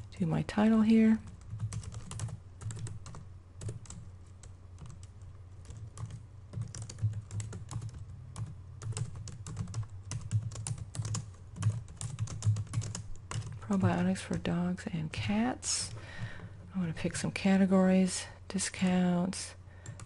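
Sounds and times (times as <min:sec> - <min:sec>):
computer keyboard typing: 0:01.2 - 0:14.4.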